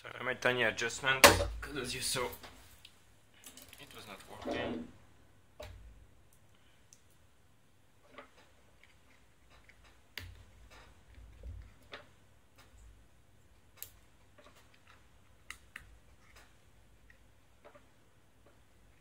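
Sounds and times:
small plastic parts clicking: 13.6 - 19.0.

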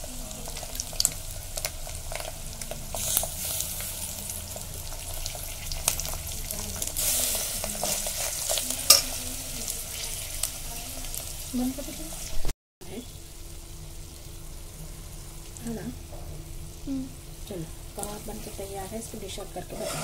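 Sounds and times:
meat sizzling in oil: 0.0 - 20.0
metal spoon scraping a pot: 19.6 - 20.0.

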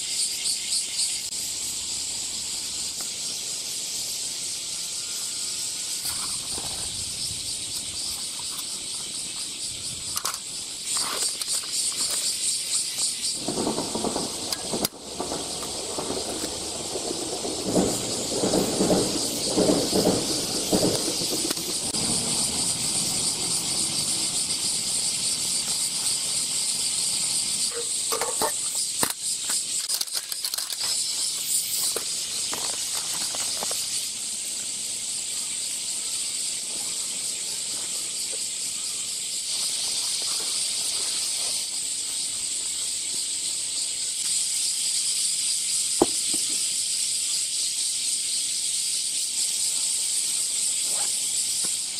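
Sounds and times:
cicadas chorus: 0.0 - 51.9
handling scraping and clatter: 6.0 - 7.0, 8.0 - 13.2, 27.7 - 34.0.

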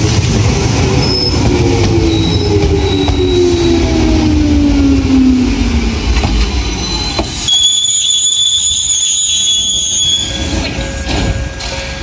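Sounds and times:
train braking whine: 0.9 - 12.0
high-pitched squeal: 6.0 - 12.0.

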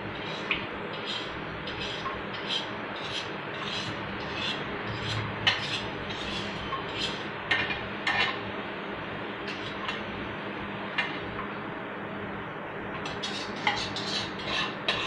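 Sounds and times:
small tool scraping a container: 0.2 - 7.2, 13.1 - 15.0.

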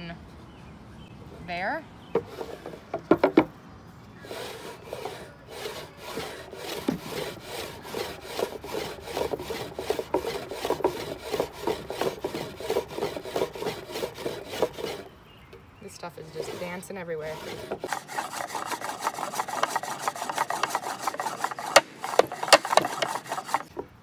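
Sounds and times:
sharp wooden knocks: 2.1 - 3.5, 6.1 - 15.0, 17.4 - 23.9
wood rubbing and rasping: 2.2 - 3.5, 4.2 - 15.1, 16.0 - 24.0.

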